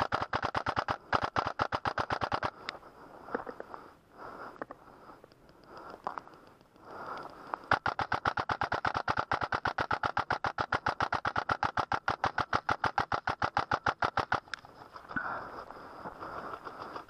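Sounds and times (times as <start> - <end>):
airsoft gun full-auto firing: 0.0 - 2.6, 7.6 - 14.5.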